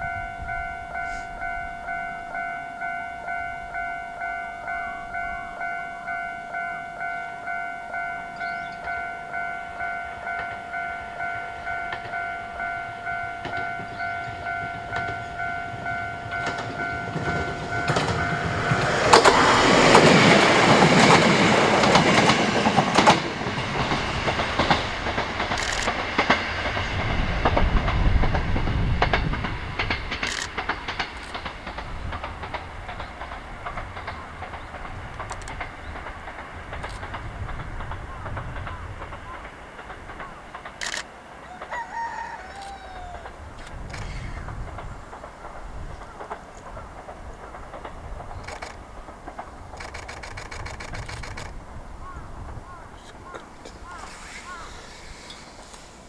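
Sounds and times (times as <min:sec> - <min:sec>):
level-crossing alarm bell ringing: 0:00.0 - 0:20.8
train engine rumble: 0:00.0 - 0:56.0
train wheels on rail: 0:00.0 - 0:56.0.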